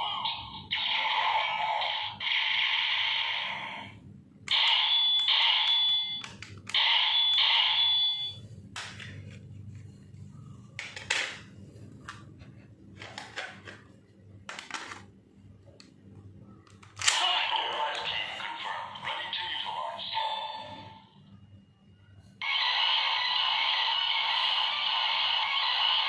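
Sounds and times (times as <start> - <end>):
electronic alarm-like bursts: 4.5 - 8.5, 22.4 - 26.0.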